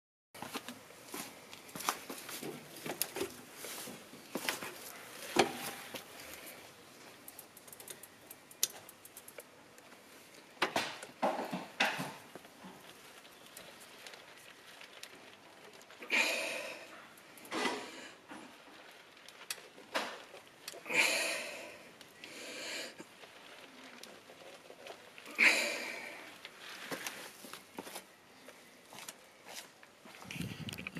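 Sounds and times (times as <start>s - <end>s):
bicycle clicks and knocks: 7.2s - 9.6s.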